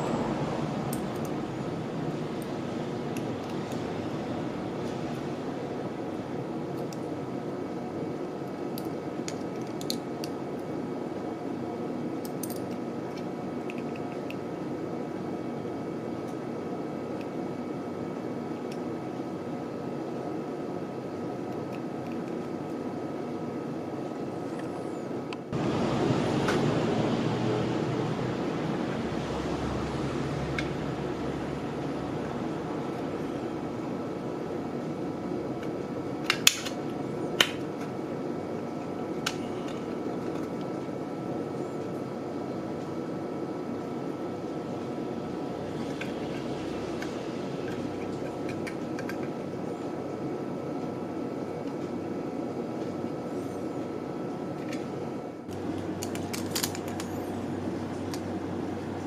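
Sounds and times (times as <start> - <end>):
fan-like room hum: 0.0 - 59.0
metal parts clicking: 56.0 - 57.1.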